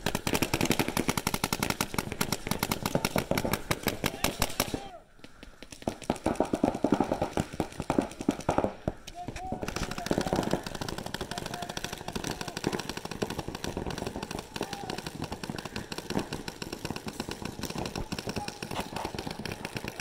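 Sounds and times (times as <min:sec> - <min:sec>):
paintball markers firing rapidly: 0:00.0 - 0:20.0.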